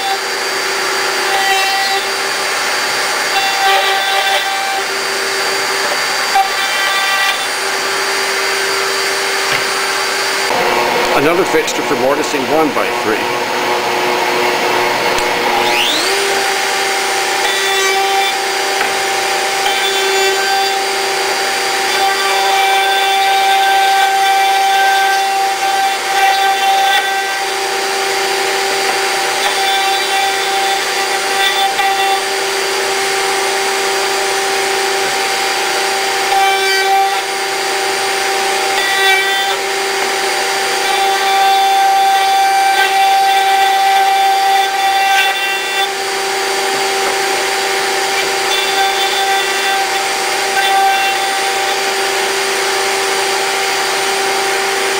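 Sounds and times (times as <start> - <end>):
router cutting wood: 0.0 - 54.9
router high whine: 0.0 - 54.9.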